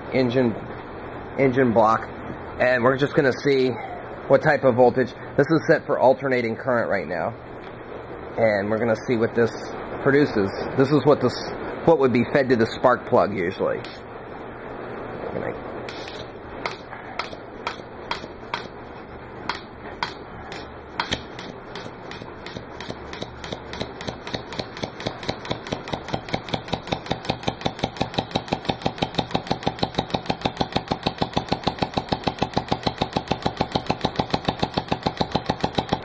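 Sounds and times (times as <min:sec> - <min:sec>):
air-powered engine strokes: 0:15.8 - 0:36.0.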